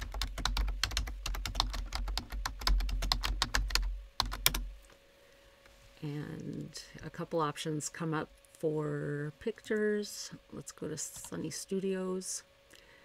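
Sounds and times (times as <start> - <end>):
fast typing on keyboard: 0.0 - 4.7.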